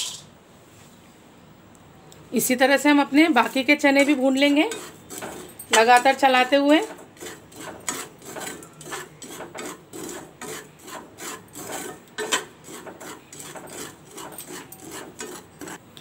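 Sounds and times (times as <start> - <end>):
metal spatula scraping through salt: 3.4 - 15.8.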